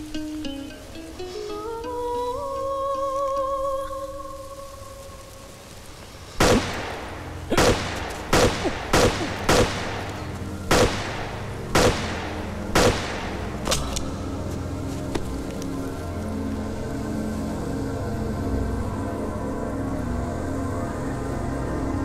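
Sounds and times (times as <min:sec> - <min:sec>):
low steady drone: 0:03.9 - 0:22.0
gunshots: 0:06.4 - 0:14.1.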